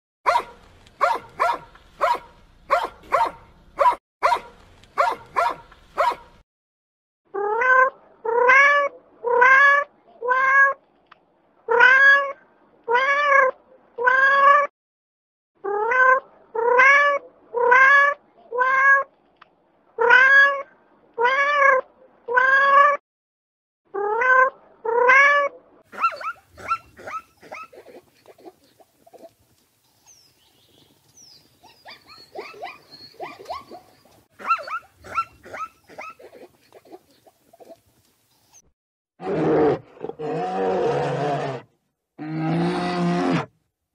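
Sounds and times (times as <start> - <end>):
dog barking: 0.3 - 6.4, 25.9 - 28.6, 31.9 - 36.5.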